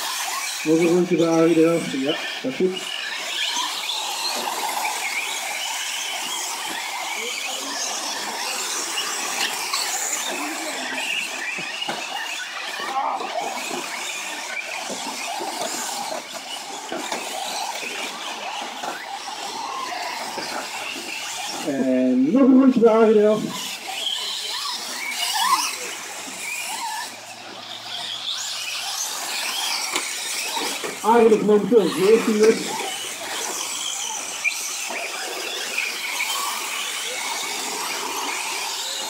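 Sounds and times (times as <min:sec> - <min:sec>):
rc truck motors whining: 0:00.0 - 0:39.0.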